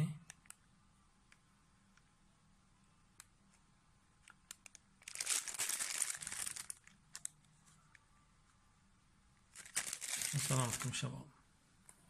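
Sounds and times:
plastic bag crinkling: 4.5s - 7.3s, 9.5s - 11.0s.

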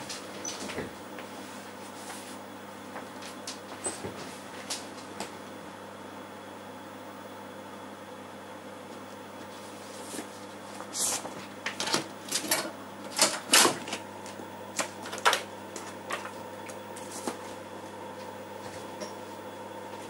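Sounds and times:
steady machine hum: 0.0s - 20.0s
floppy disk drive clicks and clatter: 11.2s - 17.6s.

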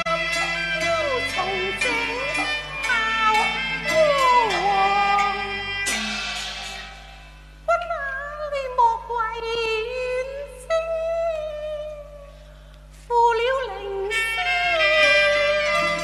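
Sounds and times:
woman singing opera: 0.0s - 5.8s, 7.7s - 12.3s, 13.1s - 16.0s
instrumental accompaniment: 0.0s - 7.7s, 13.9s - 16.0s.

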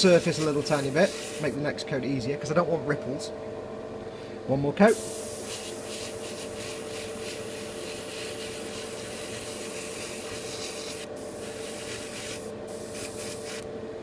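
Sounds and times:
airbrush spraying hiss: 0.0s - 1.6s, 4.9s - 13.7s
faint steady hum: 0.0s - 14.0s.

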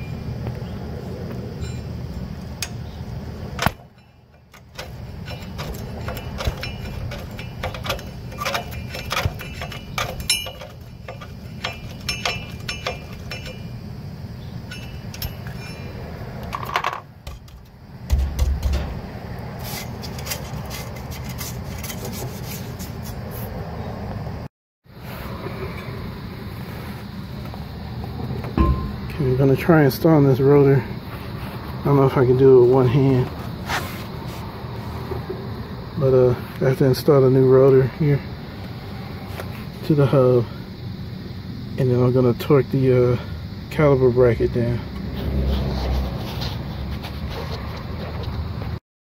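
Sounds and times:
metallic clicks and clinks: 3.6s - 13.8s, 14.7s - 17.8s
dull thump: 17.2s - 19.1s, 28.5s - 29.2s
steady low rumble: 24.3s - 37.0s.

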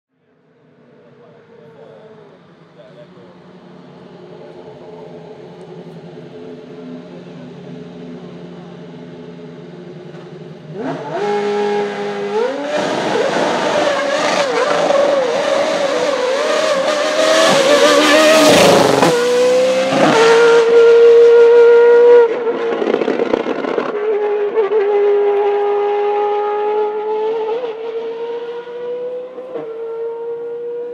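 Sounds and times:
race car engine revving: 0.7s - 30.9s.

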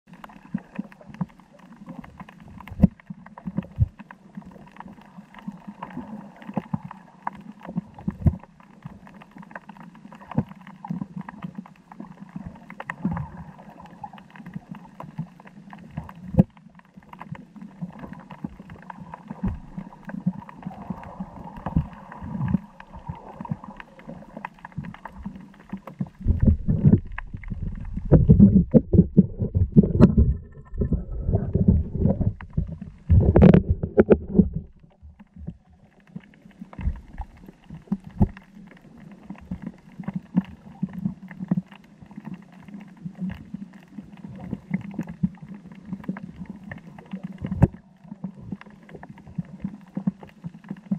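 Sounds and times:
underwater clicks and crackles: 0.1s - 50.9s
low steady hum: 19.4s - 35.9s
low rumbling and thumps: 26.0s - 35.6s.

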